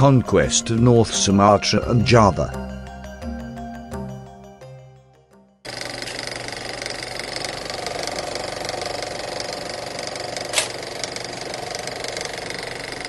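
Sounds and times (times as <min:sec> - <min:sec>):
machine rattling: 0:05.7 - 0:13.0.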